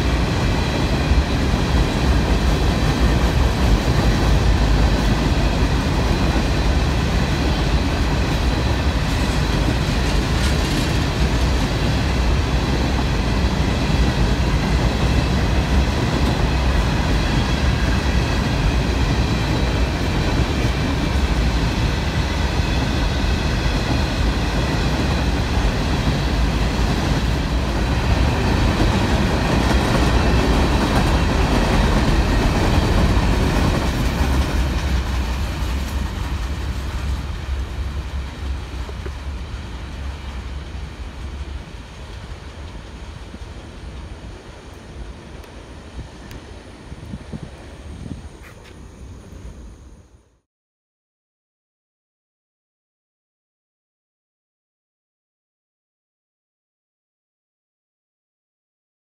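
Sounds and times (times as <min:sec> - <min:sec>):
steel wheels rumbling on rail: 0:00.0 - 0:49.9
faint high whining tones: 0:43.6 - 0:50.4.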